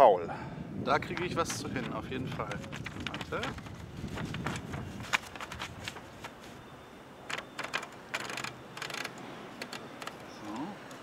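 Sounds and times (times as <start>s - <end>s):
paper rustling: 1.1s - 6.6s, 7.3s - 10.2s
typewriter carriage clicking and ratcheting: 7.3s - 10.2s.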